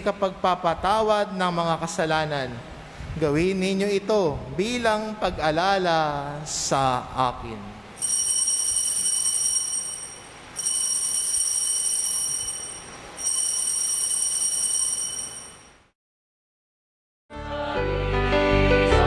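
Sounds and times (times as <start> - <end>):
altar bells ringing: 8.0 - 15.8.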